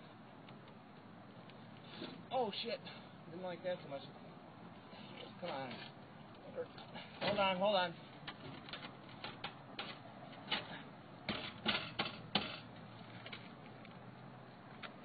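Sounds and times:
bumping and scraping on a roof: 0:08.2 - 0:13.6.

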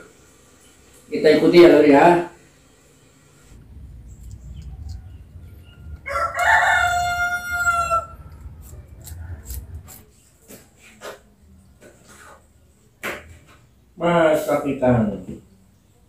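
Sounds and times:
rooster crowing: 0:04.5 - 0:09.9.

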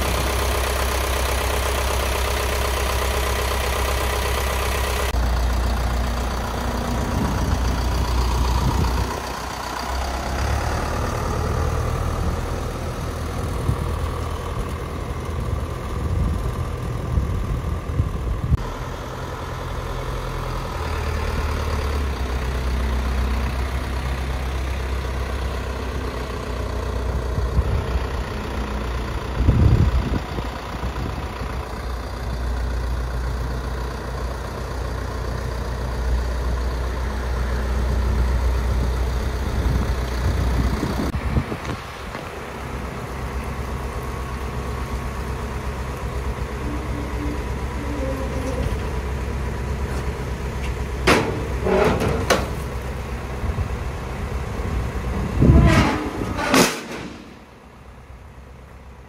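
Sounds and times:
truck engine idling: 0:00.0 - 0:59.0
metal liftgate clanking: 0:55.8 - 0:57.5.

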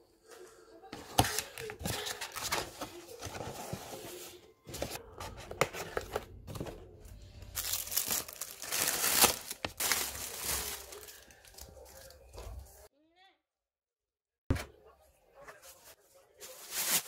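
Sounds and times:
packaging crinkling and rustling: 0:07.4 - 0:12.6.

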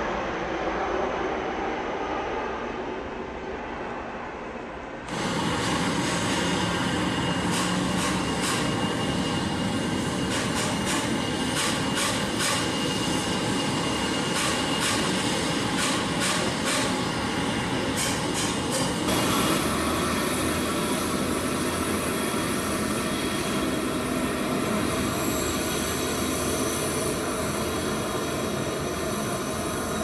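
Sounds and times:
jet engines rushing hum: 0:00.0 - 0:30.0.

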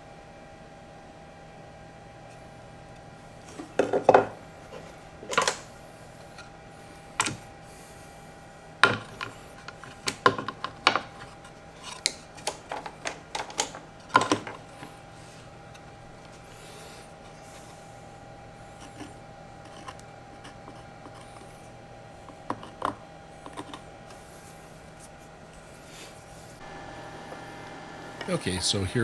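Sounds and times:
hard wood knocks and clatters: 0:03.6 - 0:04.4.

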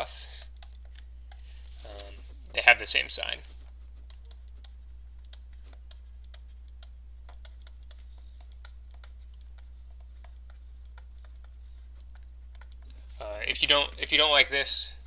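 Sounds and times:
steady low hum: 0:00.0 - 0:15.0
stylus tapping on tablet: 0:00.3 - 0:01.7, 0:03.6 - 0:13.0.

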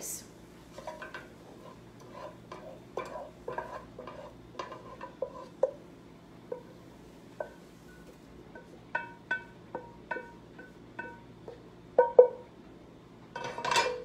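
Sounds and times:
spoon scraping a skillet: 0:00.7 - 0:05.8.

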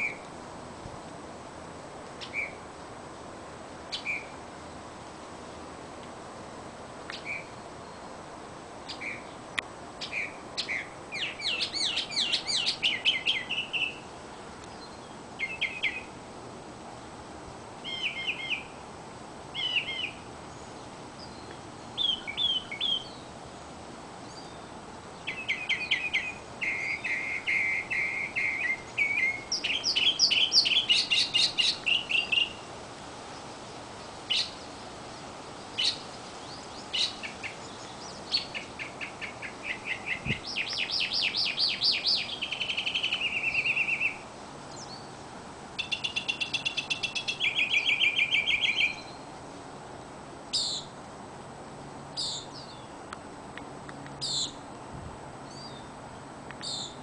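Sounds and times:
mockingbird singing: 0:02.2 - 0:02.6, 0:10.0 - 0:14.0, 0:14.7 - 0:16.1, 0:17.8 - 0:18.7, 0:19.5 - 0:20.2, 0:21.2 - 0:23.3, 0:25.2 - 0:32.6, 0:34.3 - 0:34.8, 0:35.7 - 0:45.1, 0:45.8 - 0:49.2, 0:52.2 - 0:52.9, 0:54.2 - 0:54.6.

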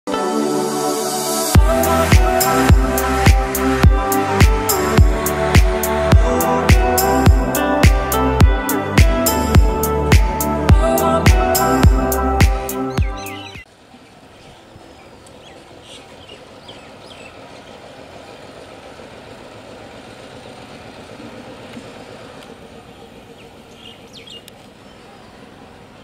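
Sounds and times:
music: 0:00.1 - 0:13.6
distant electric train rumble: 0:00.5 - 0:12.4, 0:13.8 - 0:26.0
birds chirping: 0:01.6 - 0:19.2, 0:21.4 - 0:26.0.

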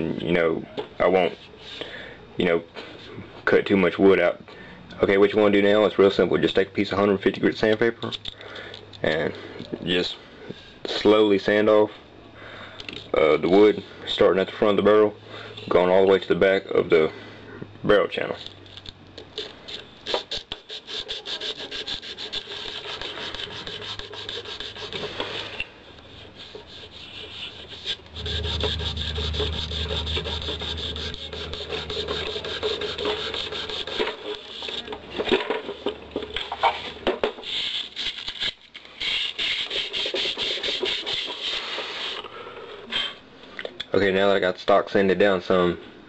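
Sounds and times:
sandpaper rubbing on wood: 0:20.1 - 0:34.9, 0:39.0 - 0:42.2.

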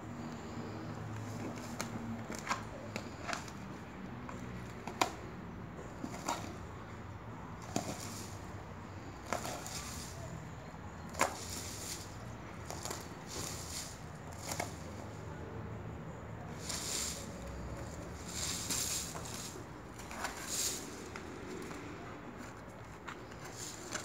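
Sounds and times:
dog chewing dry palm frond: 0:09.2 - 0:10.4, 0:11.0 - 0:15.1, 0:16.5 - 0:24.0.

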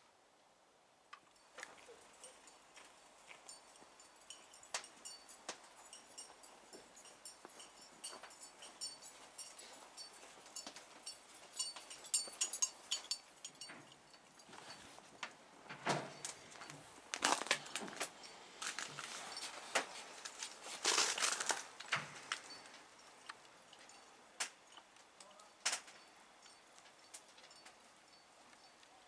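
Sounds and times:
footsteps crunching in snow: 0:16.5 - 0:22.4.

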